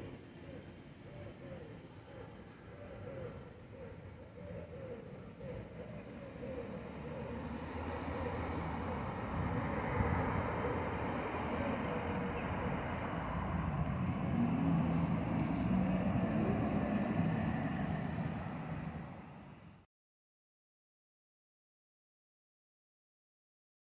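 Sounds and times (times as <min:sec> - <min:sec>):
street traffic going by: 0:00.0 - 0:19.8
low vehicle engine hum: 0:03.3 - 0:19.8.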